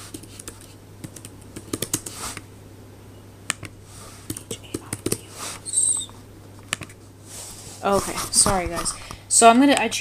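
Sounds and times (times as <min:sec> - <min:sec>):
laptop keyboard typing: 0:00.0 - 0:02.4, 0:03.5 - 0:05.3.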